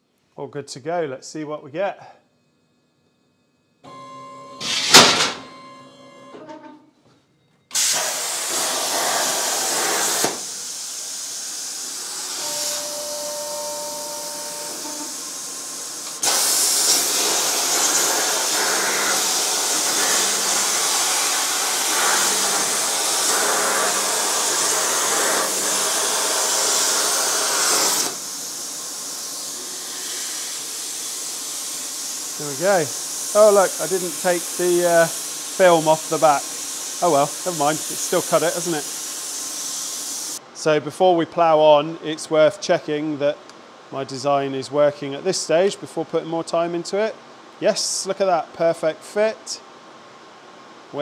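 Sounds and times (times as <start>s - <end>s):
plasma torch hissing: 4.6s - 5.4s, 7.7s - 40.4s.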